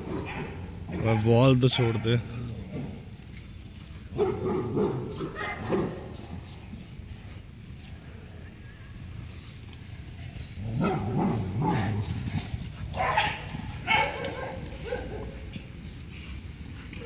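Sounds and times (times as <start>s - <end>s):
dog barking: 4.2s - 6.1s, 10.8s - 12.0s, 12.9s - 15.4s.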